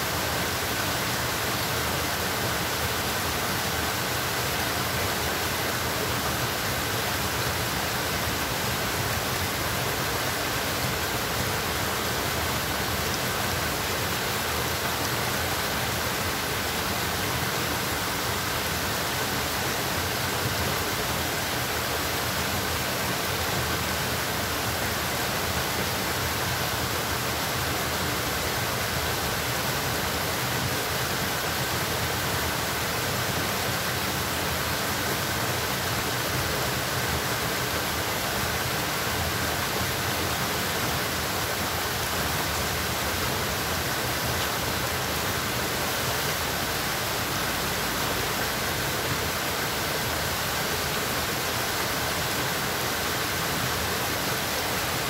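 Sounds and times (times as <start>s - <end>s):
flowing water rushing: 0.0s - 55.0s.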